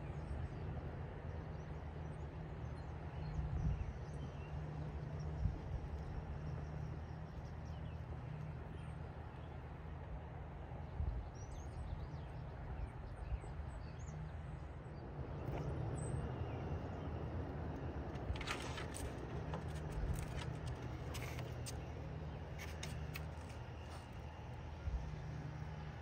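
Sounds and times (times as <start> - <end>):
small birds chirping: 1.4 - 9.8.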